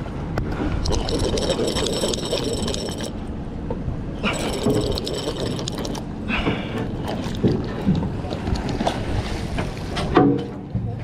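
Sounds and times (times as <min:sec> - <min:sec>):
fishing reel cranking: 0:00.8 - 0:03.1.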